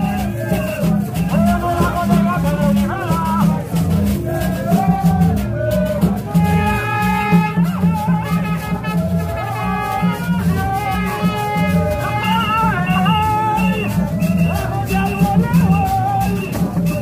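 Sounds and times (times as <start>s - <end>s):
hand drums: 0.0s - 17.0s
rattling percussion: 0.0s - 17.0s
tube trumpets playing low riff: 6.0s - 15.3s
high held horn notes: 6.3s - 14.0s.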